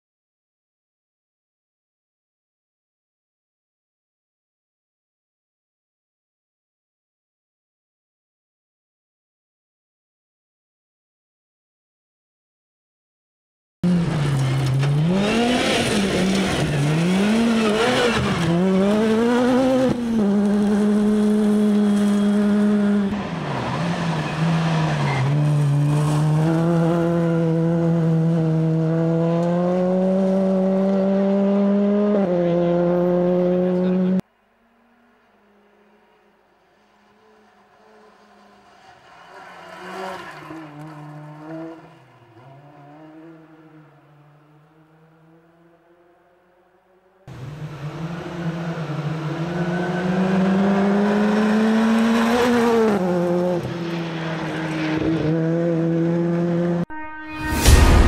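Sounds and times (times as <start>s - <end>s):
rally car engine revving: 13.8s - 34.2s, 36.8s - 46.1s, 47.3s - 57.1s
distant car engine passing: 13.9s - 46.5s.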